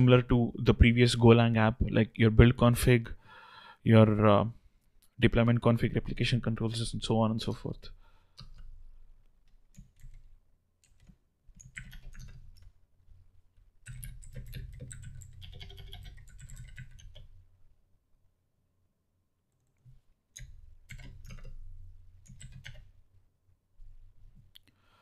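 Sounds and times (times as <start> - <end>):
typing on computer keyboard: 8.3 - 8.8, 9.4 - 12.7, 13.8 - 17.3, 20.4 - 21.6, 22.2 - 22.9.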